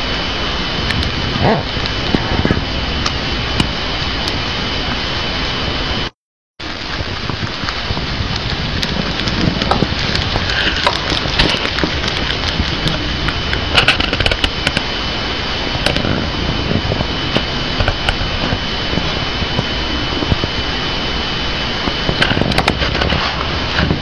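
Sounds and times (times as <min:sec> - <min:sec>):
thin high whine: 0:00.0 - 0:24.0
hamster chewing crunchy leaves: 0:06.7 - 0:14.8, 0:21.8 - 0:24.0.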